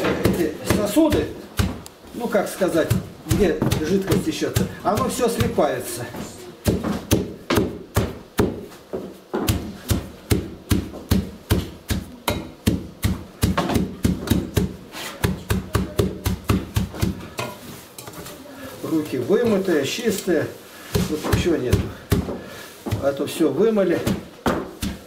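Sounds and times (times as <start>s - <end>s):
wooden pestle pounding in metal pot: 0.0s - 1.9s, 2.6s - 5.7s, 6.6s - 8.8s, 9.4s - 17.6s, 20.9s - 23.2s, 23.8s - 25.0s.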